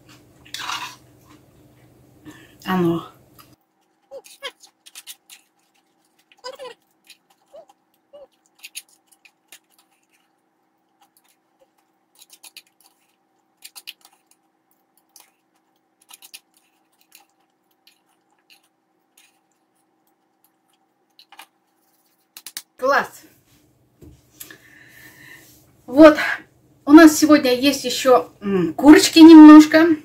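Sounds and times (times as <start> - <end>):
faint steady hum: 0.0 - 30.0
crunching chews: 3.3 - 22.6.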